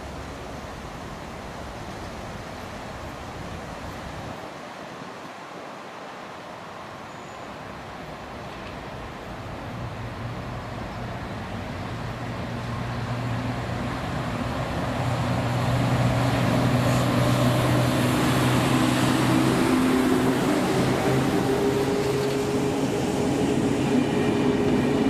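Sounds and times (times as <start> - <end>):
electric train passing: 9.8 - 25.0.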